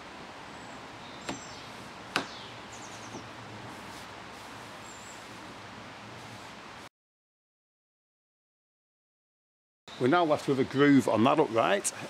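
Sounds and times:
outdoor background noise: 0.0s - 6.9s, 9.9s - 12.0s.

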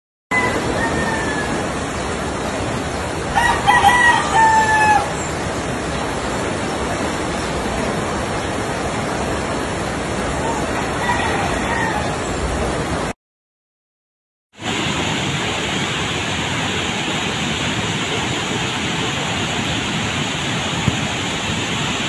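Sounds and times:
rooster crowing: 0.3s - 1.8s, 3.3s - 5.2s, 10.4s - 12.4s
floodwater rushing: 0.3s - 13.2s, 14.6s - 22.0s.

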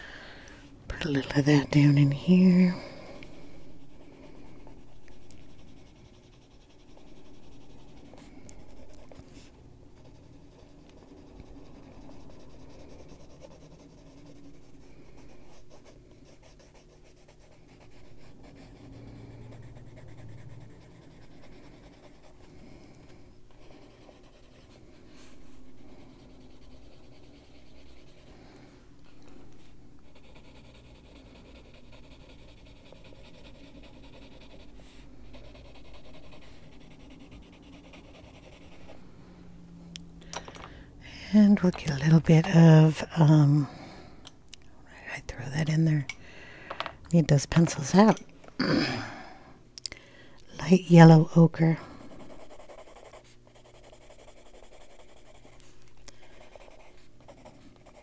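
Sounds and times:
pencil shading on paper: 1.0s - 22.4s, 23.6s - 24.9s, 25.7s - 28.4s, 30.1s - 38.9s, 50.6s - 55.6s, 56.2s - 58.0s.

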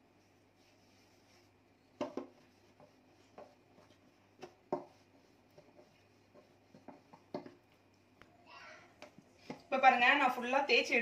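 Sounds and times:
rolling pin rolling dough on steel: 0.0s - 7.9s.

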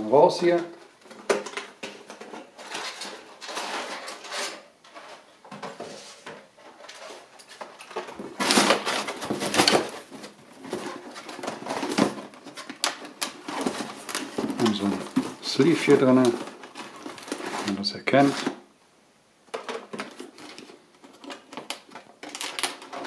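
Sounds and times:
packing paper crumpling: 6.8s - 18.6s, 19.7s - 23.0s
plastic blister pack crinkling: 7.0s - 18.6s, 19.5s - 23.0s
cardboard box scraping: 13.4s - 18.6s.

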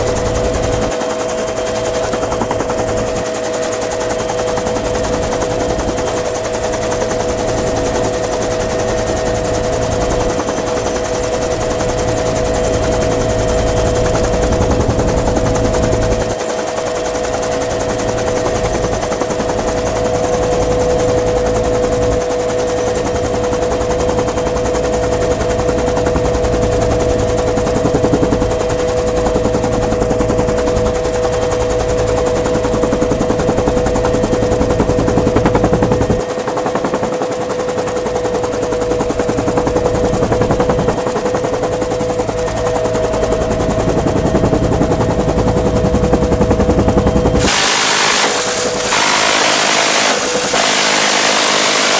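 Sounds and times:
helicopter whine: 0.0s - 51.9s
minigun firing: 47.4s - 51.9s.

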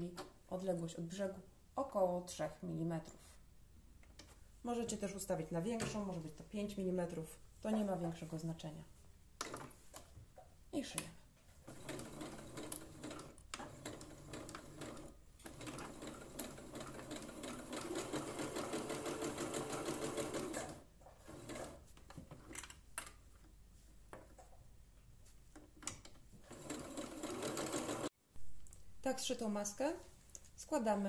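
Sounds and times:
sewing machine stitching: 11.7s - 21.8s, 26.4s - 28.1s.

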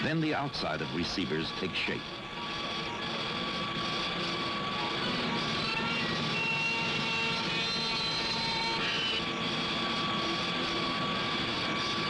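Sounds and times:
high-pitched cutter whines: 0.0s - 12.0s
milling machines roaring: 0.0s - 12.0s.

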